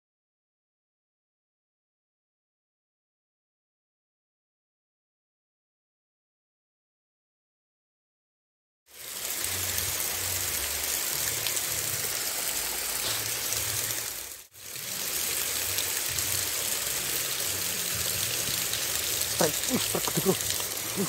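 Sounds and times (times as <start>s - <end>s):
water rushing over a weir: 9.0s - 21.0s.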